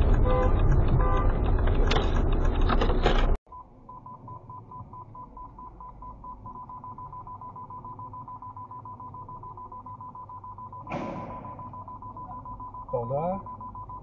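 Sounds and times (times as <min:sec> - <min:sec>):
parking sensor beeps: 0:03.5 - 0:14.0.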